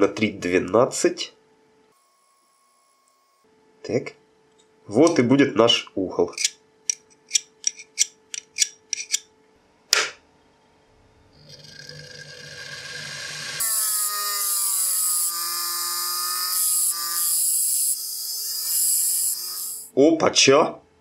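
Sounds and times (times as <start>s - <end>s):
bench grinder motor whine: 11.4s - 19.9s
chisel grinding on stone wheel: 11.4s - 19.9s.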